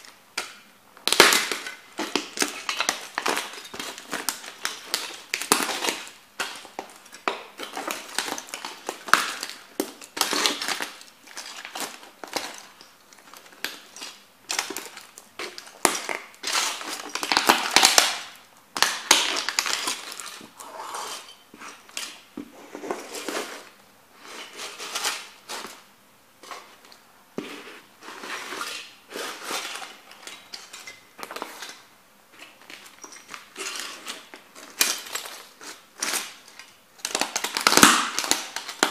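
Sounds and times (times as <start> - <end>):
plastic toy cracking under boots: 0.4 - 20.2, 36.0 - 38.9.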